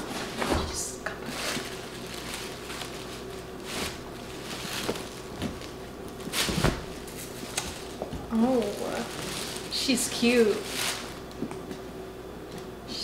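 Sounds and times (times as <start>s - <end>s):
wrapping paper rustling: 1.2s - 11.4s.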